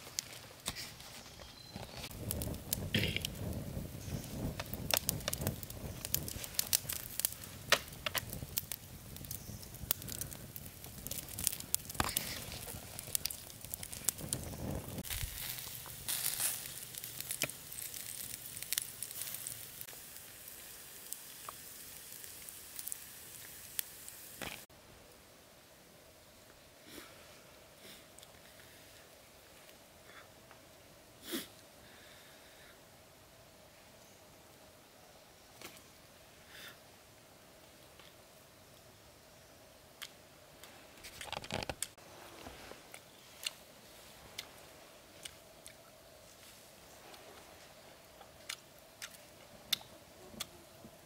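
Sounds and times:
campfire crackling and popping: 0.0 - 1.1, 1.7 - 24.7, 39.9 - 51.0.

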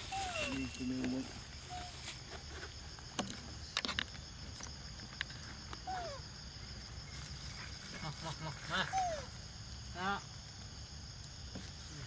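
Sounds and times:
monkey squeal: 0.0 - 0.9, 8.8 - 9.3
high insect drone: 0.0 - 12.0.

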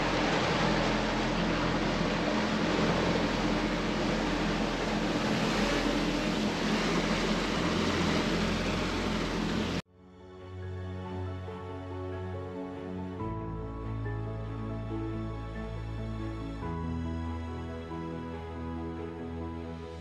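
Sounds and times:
outboard motors humming: 0.0 - 9.8
wake rushing: 0.0 - 9.8
wind: 0.0 - 20.0.

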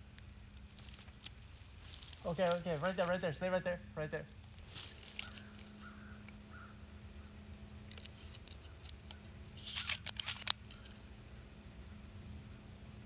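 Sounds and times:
crackly rustling: 0.0 - 3.4, 4.3 - 13.0
steady low hum: 0.0 - 13.0
faint rustles and ticks: 4.3 - 13.0
sharp click: 5.1 - 11.9.

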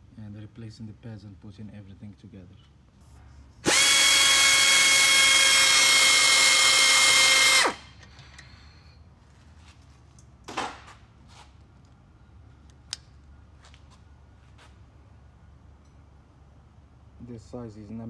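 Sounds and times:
power tool motor whining: 3.6 - 8.0.

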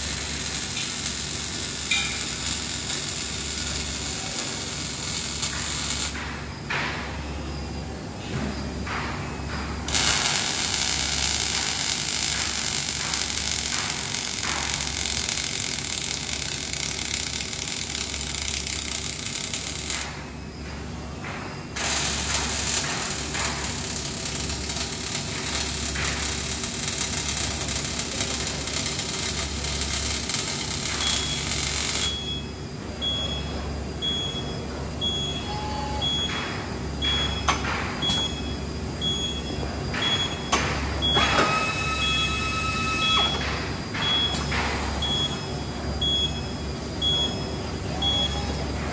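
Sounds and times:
arc weld crackling and hissing: 0.0 - 6.3, 9.8 - 20.4, 21.6 - 32.3
electronic tone: 41.2 - 43.4.

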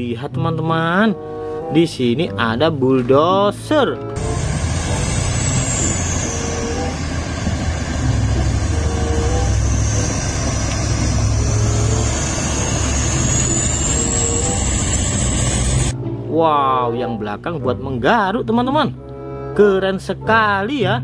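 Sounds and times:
bulldozer diesel engine rumbling: 4.1 - 16.2
thin high whine: 4.2 - 16.0.

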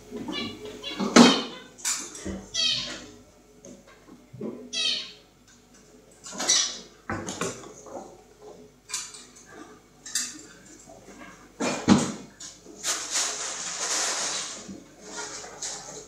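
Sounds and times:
kittens scuffling on stone floor: 12.5 - 16.0.

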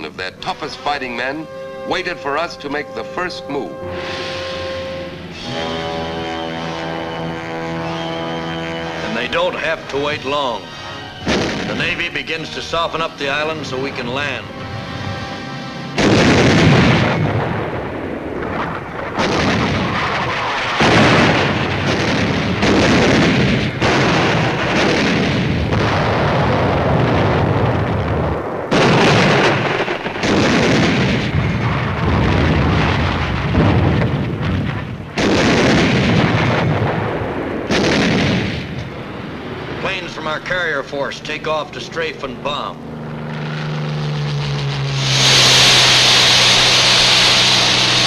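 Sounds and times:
heavy guns firing: 11.2 - 12.8, 16.0 - 41.6.

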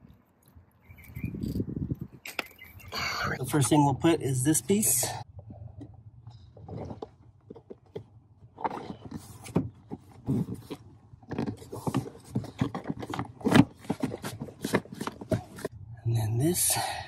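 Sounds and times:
plastic panel scraping and rubbing: 6.6 - 15.7.

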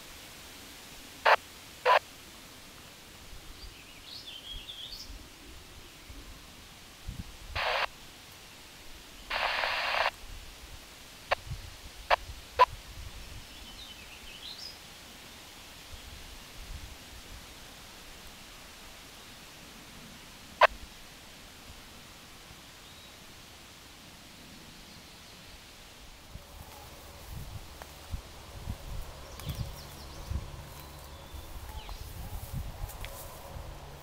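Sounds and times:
radio static crackles: 1.2 - 2.1, 7.5 - 8.1, 9.2 - 10.2, 11.2 - 12.7, 20.6 - 20.8, 26.2 - 34.0
faint bird chirps: 29.3 - 32.6.

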